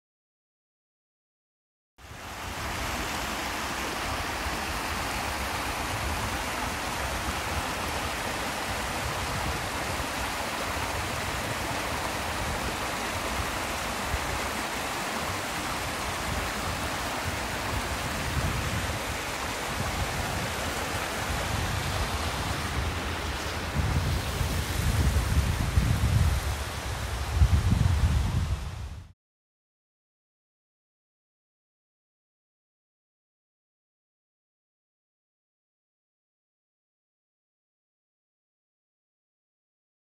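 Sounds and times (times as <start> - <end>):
waterfall rushing: 2.0 - 28.0.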